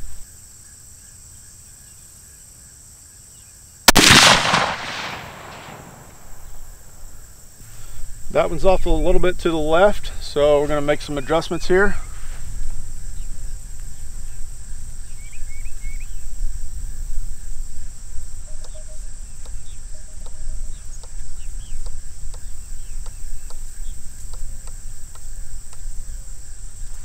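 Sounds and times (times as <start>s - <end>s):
insects droning: 0.0s - 27.0s
wind rumbling on microphone: 4.4s - 27.0s
bird chirps: 10.1s - 12.3s, 15.0s - 16.3s, 18.4s - 25.5s.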